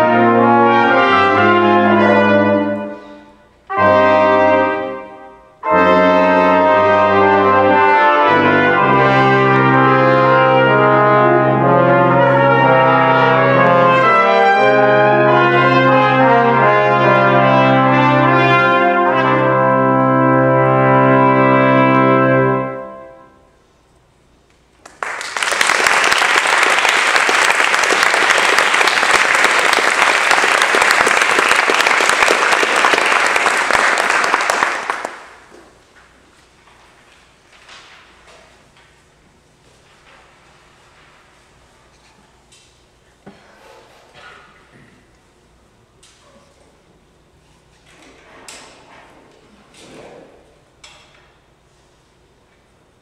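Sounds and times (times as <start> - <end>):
low tuba note: 0.0 - 23.4
brass quintet playing: 0.0 - 23.8
audience applause: 24.8 - 35.6.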